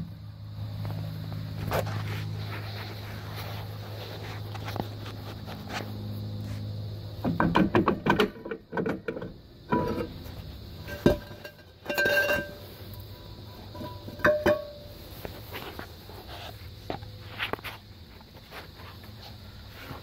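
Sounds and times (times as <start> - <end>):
steady low hum: 0.0 - 20.0
metal knocks and scrapes: 7.2 - 17.7
sharp ringing metal clanks: 10.8 - 15.0.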